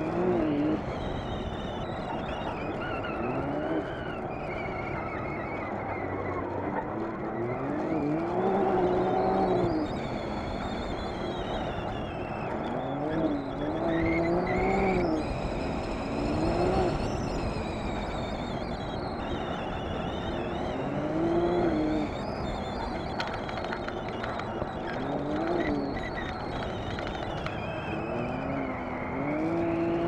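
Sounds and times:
utv engine revving: 7.3 - 10.6, 11.3 - 22.6, 23.4 - 30.0.

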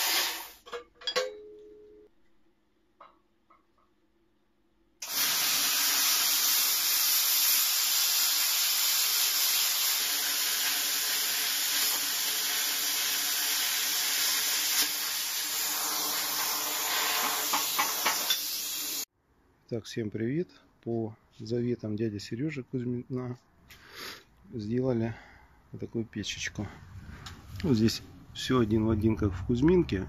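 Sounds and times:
plasma cutter hissing: 5.0 - 19.1.

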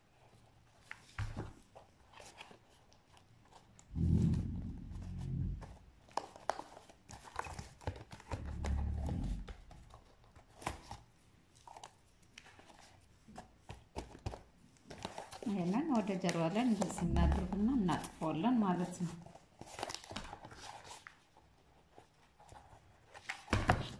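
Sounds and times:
cardboard tube rustling and tapping: 0.8 - 18.3
low dull thumps: 3.9 - 5.8.

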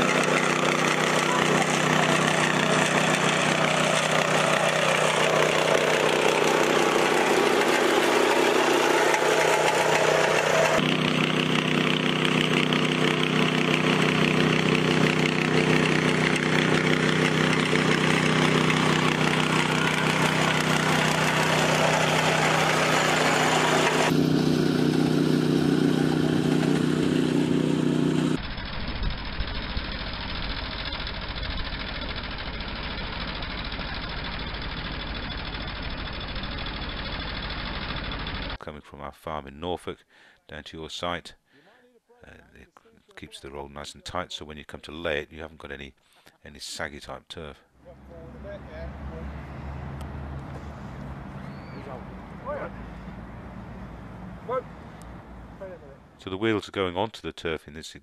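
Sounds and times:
small petrol engine running: 0.0 - 38.6, 47.9 - 54.7
tractor engine: 0.0 - 38.7, 47.7 - 56.4.

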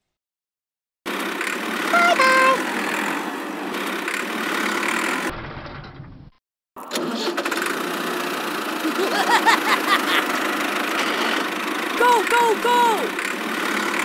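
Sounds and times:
tractor engine rumbling: 6.8 - 9.1.

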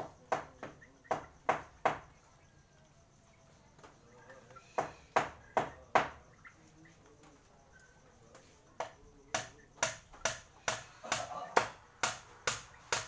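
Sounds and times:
sharp knocks: 0.0 - 2.2, 4.7 - 6.3, 8.8 - 13.0.

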